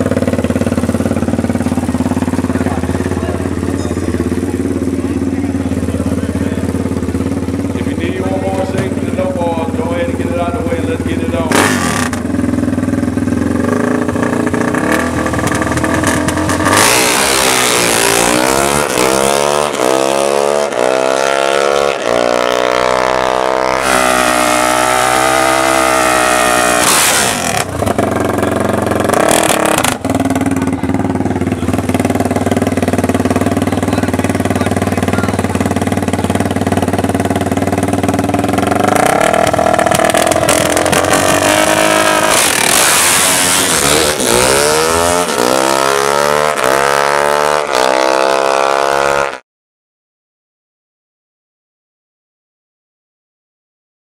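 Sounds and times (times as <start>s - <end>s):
dirt bike engine idling and revving: 0.0s - 49.4s.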